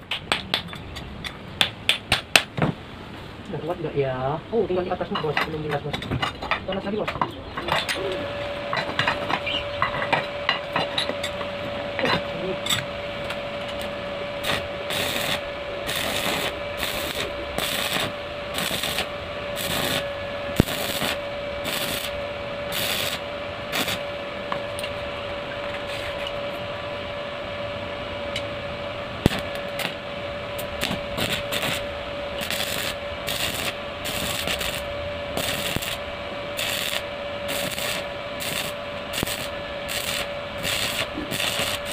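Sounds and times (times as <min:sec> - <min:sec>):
steady hum: 0:00.0 - 0:41.9
welding arc crackling: 0:13.6 - 0:24.1, 0:29.2 - 0:41.9.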